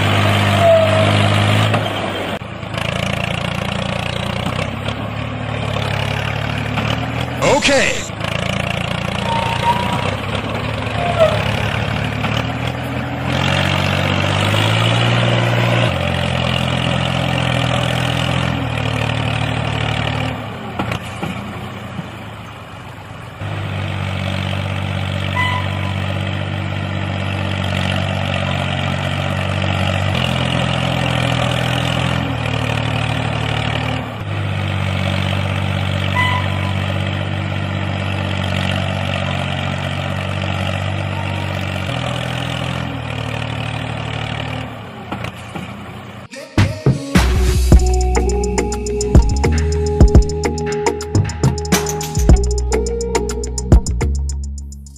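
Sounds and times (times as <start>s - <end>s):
tractor engine idling: 47.6s - 54.9s.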